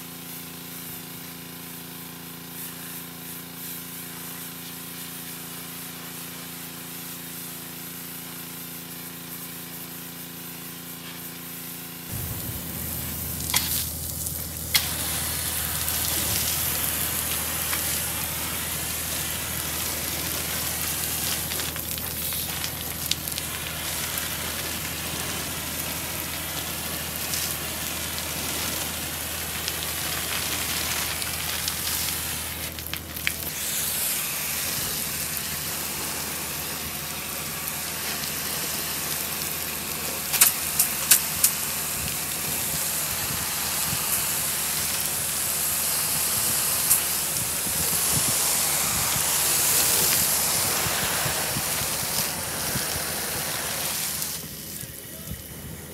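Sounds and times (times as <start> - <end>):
pressure washer spraying: 0.1 - 55.9
low hum: 12.0 - 31.7.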